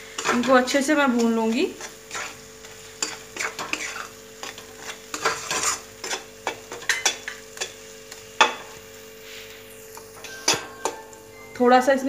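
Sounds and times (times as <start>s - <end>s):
masala sizzling in oil: 0.0s - 12.0s
spatula scraping metal pan: 1.8s - 2.4s, 3.0s - 6.2s.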